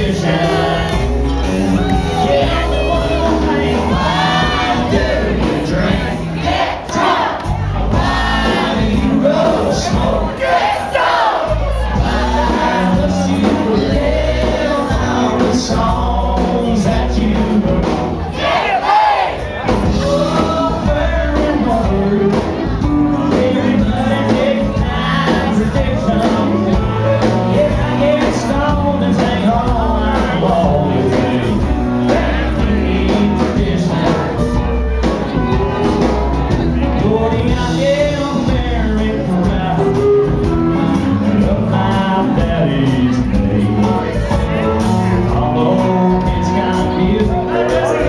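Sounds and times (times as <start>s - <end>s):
live country band: 0.0s - 48.0s
electric guitar: 19.6s - 48.0s.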